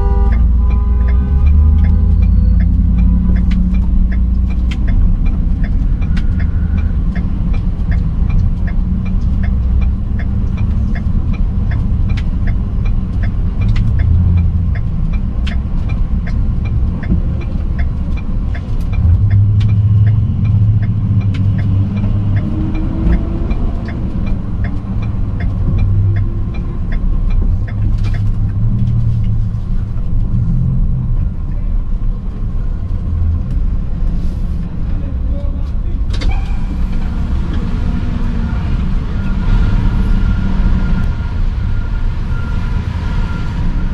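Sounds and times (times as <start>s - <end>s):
city street traffic rumble: 0.0s - 43.9s
light ticks: 0.3s - 30.4s.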